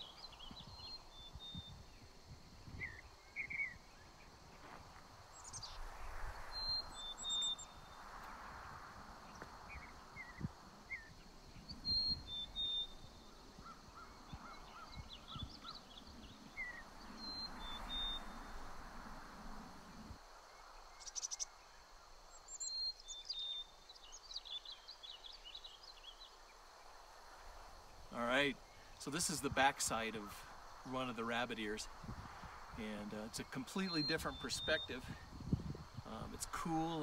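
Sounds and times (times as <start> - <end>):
songbirds chirping and singing: 0.0 - 6.0, 9.3 - 18.4, 32.8 - 37.0
wind rumble on microphone: 0.0 - 20.3, 31.8 - 33.1, 34.2 - 37.0.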